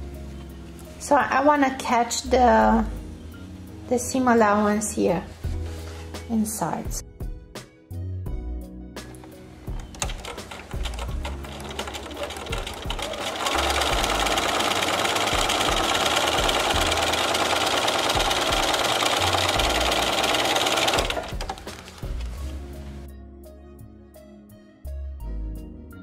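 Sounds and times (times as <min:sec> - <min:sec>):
sewing machine stitching: 0:09.8 - 0:22.4.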